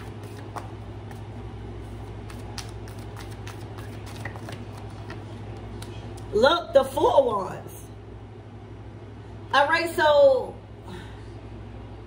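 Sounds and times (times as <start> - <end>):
cards being shuffled: 0.0 - 6.0
steady low hum: 0.0 - 12.0.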